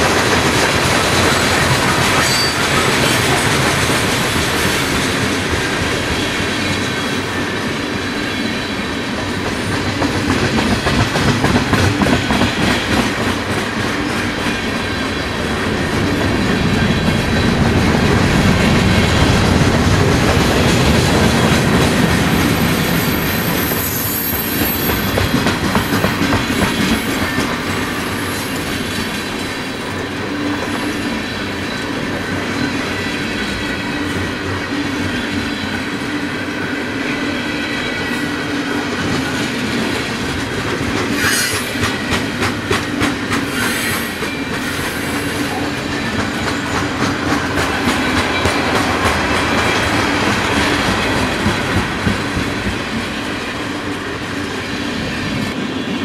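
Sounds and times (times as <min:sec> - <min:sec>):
clickety-clack over rail joints: 0:00.0 - 0:07.7, 0:09.0 - 0:30.9, 0:38.8 - 0:54.3
train wheels rumbling on rail: 0:00.0 - 0:56.0
high wheel squeal: 0:02.1 - 0:03.4, 0:22.3 - 0:26.2, 0:43.4 - 0:45.8.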